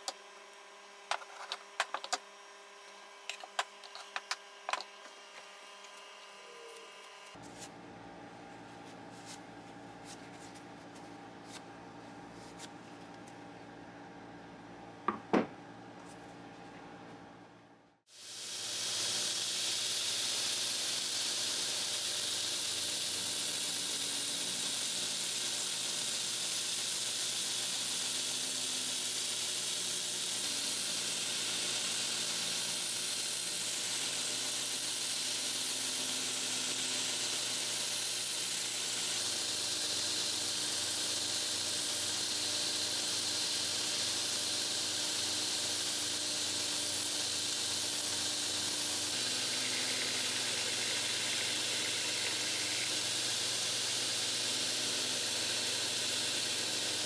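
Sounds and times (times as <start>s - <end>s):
belt grinder sanding hiss: 18.1s - 57.0s.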